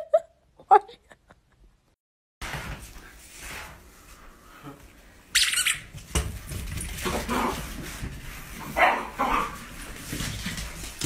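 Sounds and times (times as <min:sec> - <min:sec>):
small dog barking and yipping: 0:08.7 - 0:09.6.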